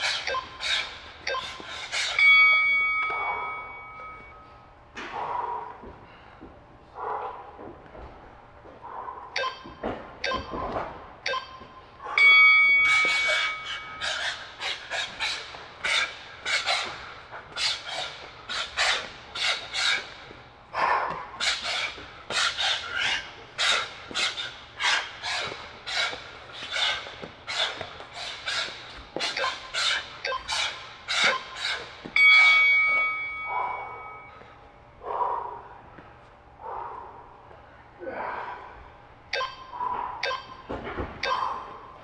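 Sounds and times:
timer countdown beeps: 0:00.2 - 0:00.6, 0:01.2 - 0:04.6, 0:09.4 - 0:10.6, 0:11.2 - 0:14.0, 0:30.2 - 0:30.5, 0:32.1 - 0:34.4, 0:39.3 - 0:41.6
timer start tone: 0:01.2 - 0:04.6, 0:09.4 - 0:10.5, 0:11.3 - 0:14.0, 0:32.2 - 0:34.4, 0:39.4 - 0:40.6.

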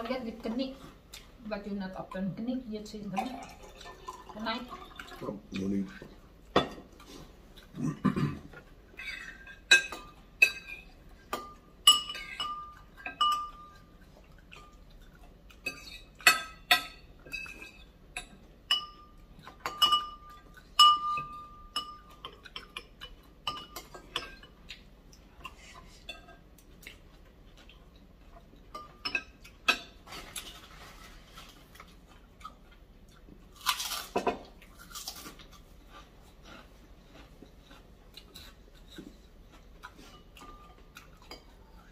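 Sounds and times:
cutlery clinking against bowl: 0:08.4 - 0:27.0, 0:27.6 - 0:31.1, 0:38.2 - 0:41.9.

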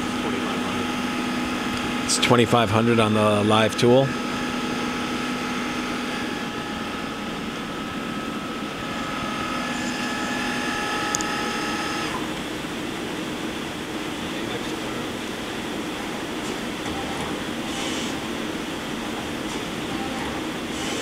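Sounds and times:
lathe spindle whine: 0:00.0 - 0:21.0
machine running hum: 0:00.0 - 0:21.0.

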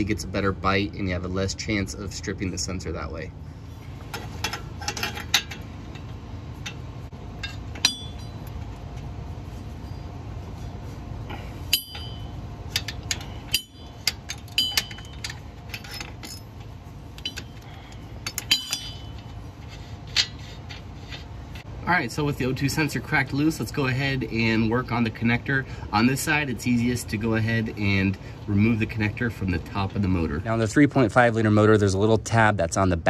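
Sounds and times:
steady low hum: 0:00.0 - 0:33.0
ratchet clinking against metal: 0:04.1 - 0:08.8, 0:11.6 - 0:21.7.

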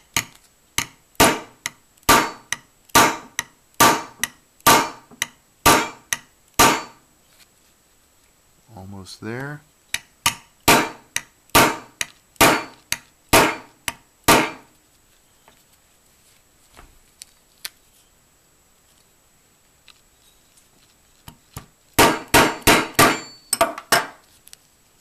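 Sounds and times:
small hammer tapping metal pin: 0:00.1 - 0:01.0, 0:01.6 - 0:03.6, 0:04.2 - 0:04.4, 0:05.2 - 0:06.3, 0:09.9 - 0:10.5, 0:12.0 - 0:13.1.

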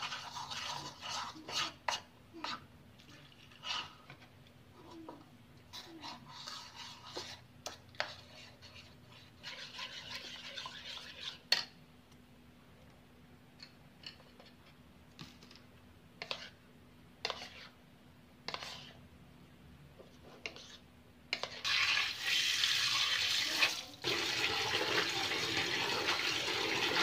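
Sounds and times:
spoon stirring batter in bowl: 0:00.0 - 0:12.2, 0:12.8 - 0:19.2, 0:19.9 - 0:22.2.

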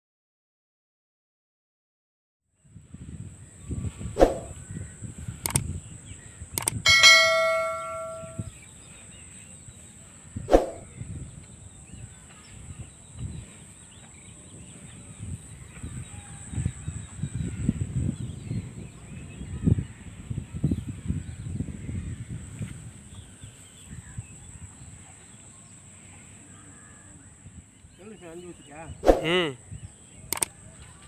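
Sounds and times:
outdoor field noise: 0:02.6 - 0:31.0
mouse clicks: 0:05.4 - 0:05.7, 0:06.6 - 0:06.8, 0:30.3 - 0:30.5
notification bell ding: 0:06.9 - 0:08.5
steady high-pitched tone: 0:06.9 - 0:08.5.

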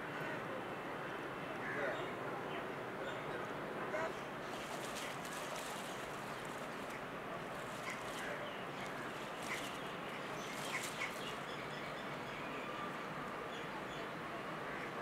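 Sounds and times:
outdoor background hiss: 0:00.0 - 0:15.0.

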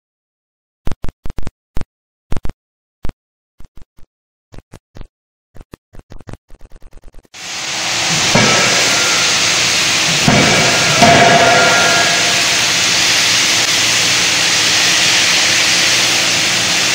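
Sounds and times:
forging hammer hiss and rumble: 0:07.4 - 0:16.9.

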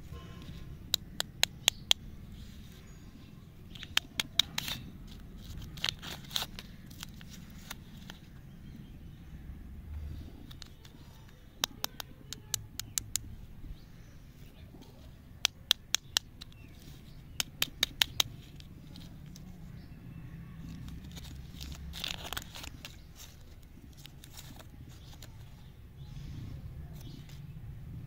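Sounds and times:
wrapper tearing: 0:03.7 - 0:08.2, 0:20.6 - 0:25.4
plastic wrapper crinkling: 0:03.7 - 0:08.4, 0:20.6 - 0:25.7.

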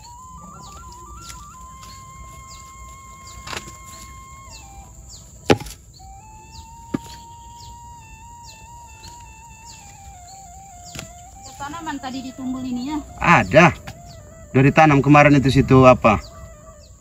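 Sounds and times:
insect buzz: 0:00.0 - 0:17.0
slow melody of held notes: 0:00.0 - 0:17.0
logs knocking when dropped: 0:05.5 - 0:05.8.

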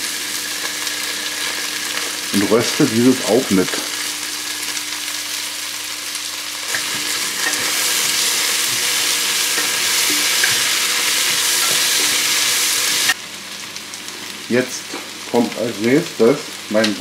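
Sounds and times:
vegetables sizzling in hot fat: 0:00.0 - 0:17.0.

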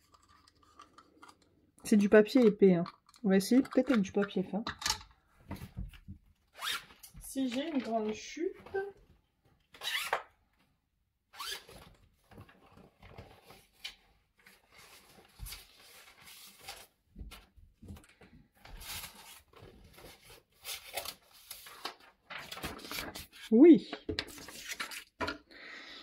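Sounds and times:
paper rustling and scraping: 0:11.6 - 0:17.5, 0:18.6 - 0:25.4.

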